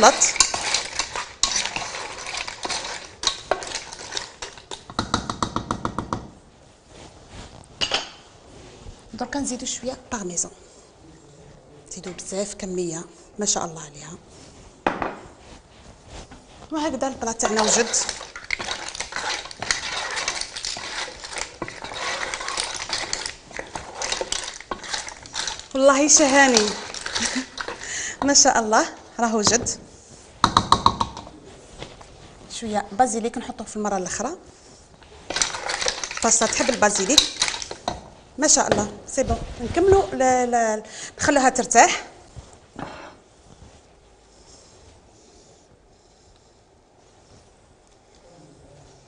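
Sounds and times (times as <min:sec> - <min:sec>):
spatula stirring pasta in saucepan: 0:00.0 - 0:06.0, 0:16.3 - 0:31.2, 0:32.5 - 0:40.4.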